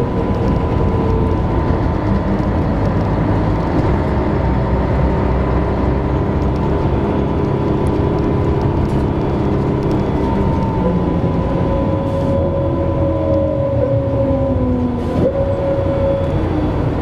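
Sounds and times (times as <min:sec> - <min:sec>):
diesel engine rumble: 0:00.0 - 0:17.0
gearbox whine: 0:00.0 - 0:17.0.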